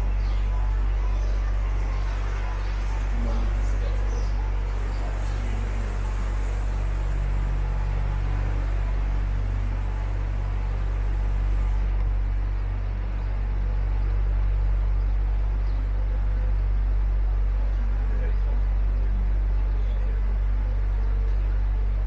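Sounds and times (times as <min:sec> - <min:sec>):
boat motor humming: 0:00.0 - 0:22.0.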